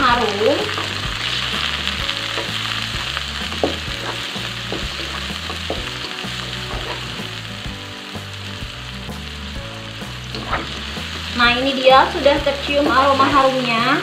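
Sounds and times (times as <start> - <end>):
food sizzling in hot oil: 0.0 - 14.0
spatula scraping and tapping pan: 3.5 - 7.2.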